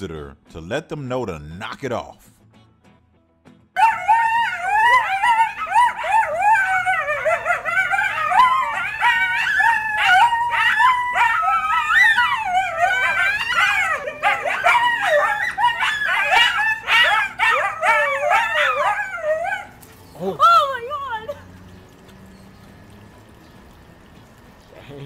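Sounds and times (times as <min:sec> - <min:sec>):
coyotes yipping and howling: 0:03.8 - 0:23.7.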